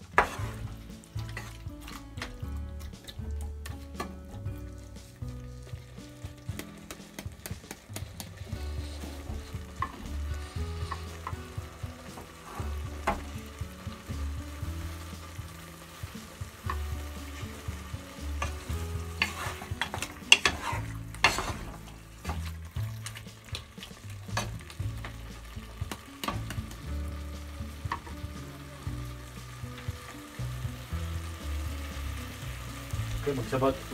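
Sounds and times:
spatula scraping pot: 0.0s - 2.0s, 5.8s - 13.3s, 16.7s - 23.3s
sauce sizzling: 0.0s - 33.9s
spatula clicking against pot: 6.6s - 8.3s.

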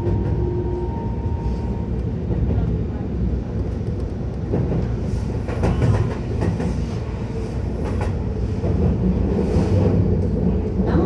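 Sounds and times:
electric train rumbling: 0.0s - 11.0s
wheels clacking on track: 3.7s - 7.0s.

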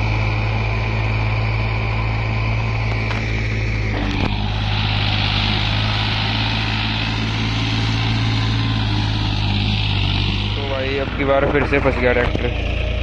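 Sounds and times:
diesel tractor engine running: 0.0s - 13.0s.

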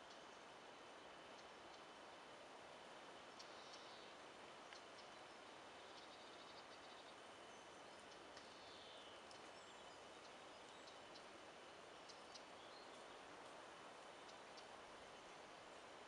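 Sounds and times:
steady hiss: 0.0s - 16.0s
faint bird chirps: 3.3s - 11.3s, 12.0s - 13.2s.

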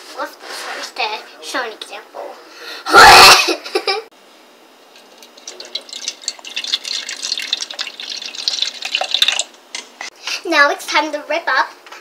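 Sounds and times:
milk pouring into a cup: 5.0s - 9.5s.

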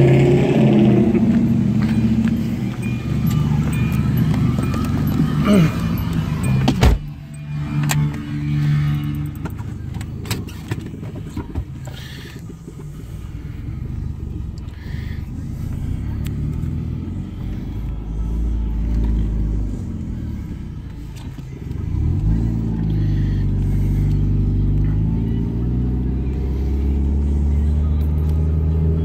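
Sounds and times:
background music: 0.0s - 29.0s
car running from inside cabin: 0.0s - 29.0s.

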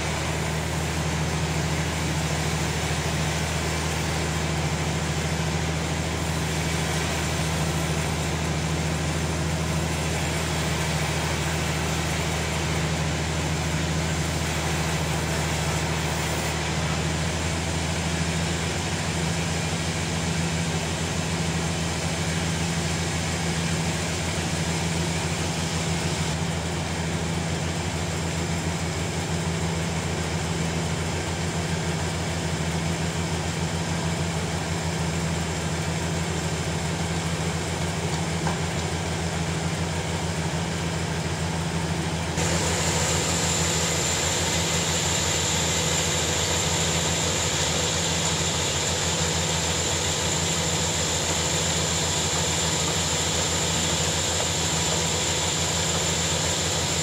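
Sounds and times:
sawmill machinery humming: 0.0s - 57.0s
high hiss: 42.4s - 56.9s.

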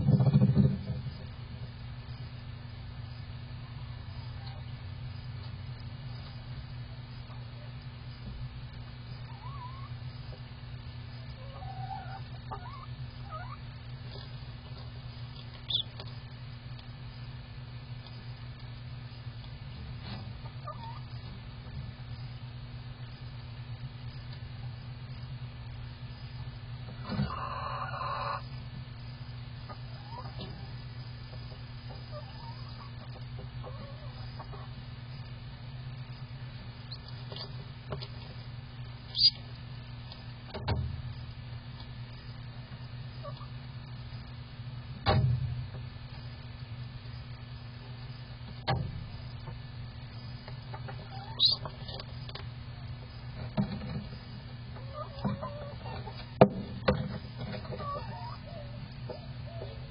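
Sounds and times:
hen clucking: 3.6s - 5.6s, 9.2s - 10.4s, 11.2s - 16.2s, 20.4s - 21.3s, 26.9s - 28.6s, 29.6s - 35.3s, 39.1s - 39.5s, 42.7s - 43.6s, 50.5s - 59.9s
low hum: 28.4s - 59.9s.

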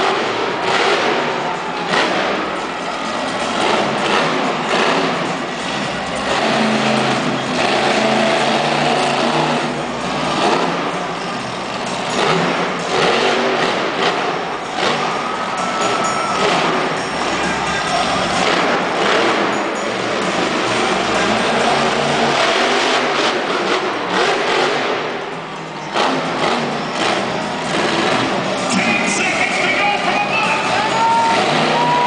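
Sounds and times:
monster truck engine revving: 0.0s - 32.0s.

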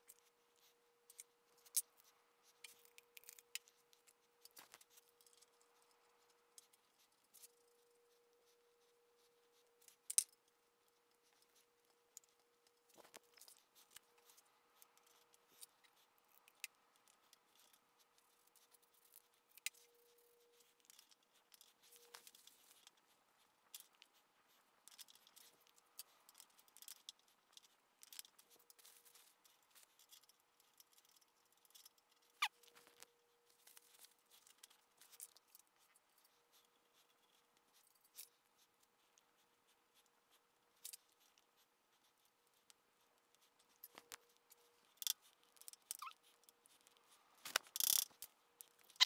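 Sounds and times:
faint steady hum: 0.0s - 49.0s
small metal parts clicking: 24.9s - 33.0s, 44.9s - 49.0s.

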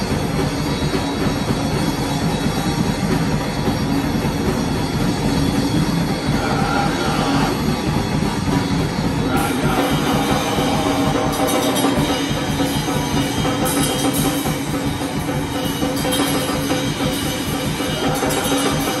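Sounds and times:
drum kit: 0.0s - 19.0s
electric guitar: 0.0s - 19.0s
person singing: 6.3s - 7.9s, 9.2s - 13.6s, 17.5s - 19.0s.

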